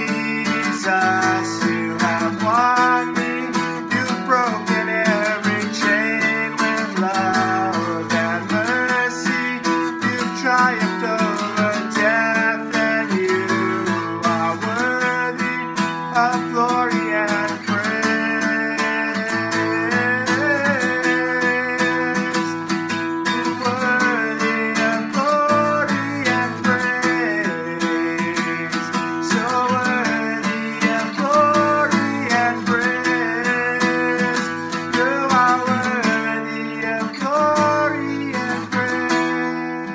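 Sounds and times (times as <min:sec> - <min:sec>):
acoustic guitar strumming: 0:00.0 - 0:39.9
man singing: 0:00.0 - 0:39.9.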